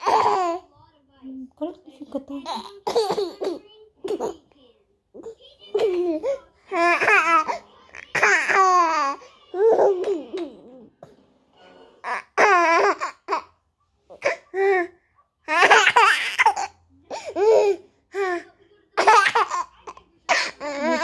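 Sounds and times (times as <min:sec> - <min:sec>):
toddler laughing: 0:02.4 - 0:04.4, 0:19.0 - 0:19.7, 0:20.3 - 0:21.0.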